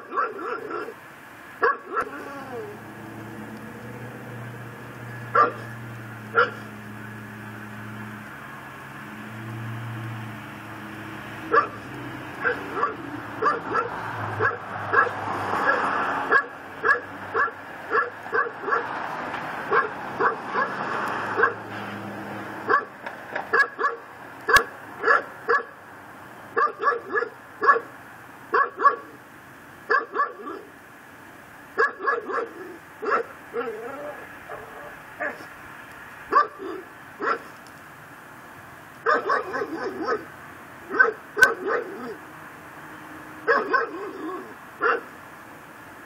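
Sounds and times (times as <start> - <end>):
dog barking: 0.0 - 1.0, 1.6 - 2.3, 5.3 - 5.7, 6.3 - 6.7, 11.5 - 11.8, 12.4 - 18.9, 19.7 - 20.8, 21.4 - 21.6, 22.7 - 25.8, 26.6 - 27.9, 28.5 - 29.2, 29.9 - 30.7, 31.8 - 35.5, 36.3 - 37.5, 39.0 - 40.3, 40.9 - 42.2, 43.5 - 45.1
car driving past: 2.4 - 17.4, 18.6 - 23.6.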